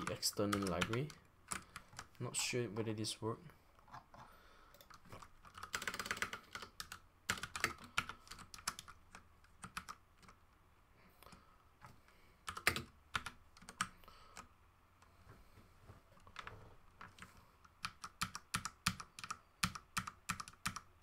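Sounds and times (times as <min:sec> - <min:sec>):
computer keyboard typing: 0:00.0 - 0:02.2, 0:04.7 - 0:10.4, 0:12.4 - 0:14.5, 0:17.0 - 0:21.0.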